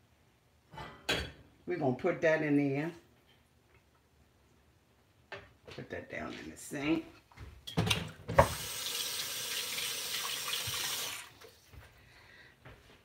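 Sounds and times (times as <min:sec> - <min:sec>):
object knocking in a sink: 0:07.7 - 0:08.6
faucet running: 0:08.4 - 0:11.6.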